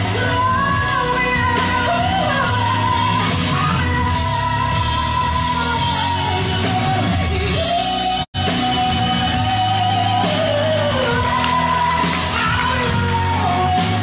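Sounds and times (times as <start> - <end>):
drums: 0.0 - 14.0.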